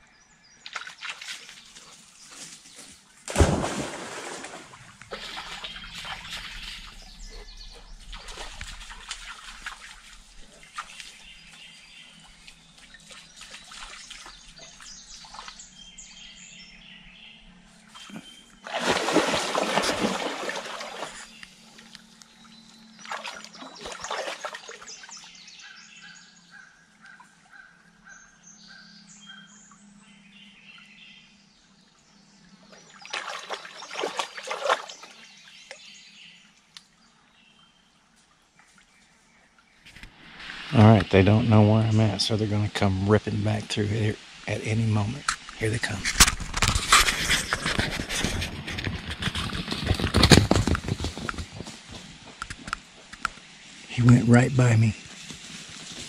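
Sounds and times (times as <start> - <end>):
dogs splashing in water: 3.3 - 11.2, 12.4 - 15.6, 18.1 - 21.4, 23.0 - 25.2, 32.8 - 35.3.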